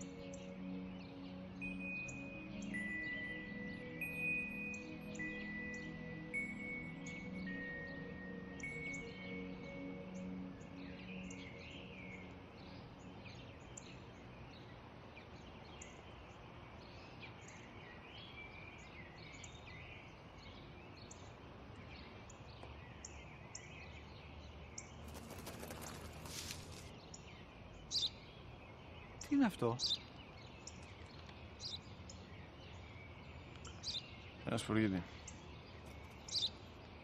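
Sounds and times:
soft music: 0.0s - 22.8s
small birds chirping: 0.0s - 37.0s
brief rustle: 25.1s - 26.9s.

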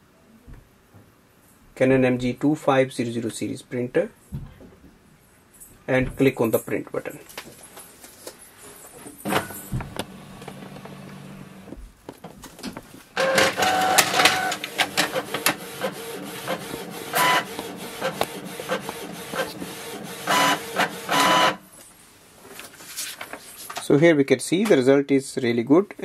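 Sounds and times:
inkjet printer printing: 13.2s - 21.6s.

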